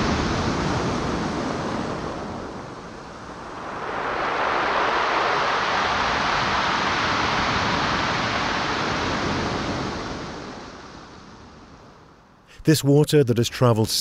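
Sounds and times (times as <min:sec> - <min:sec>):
wave washing up pebble shore: 0:03.1 - 0:10.7.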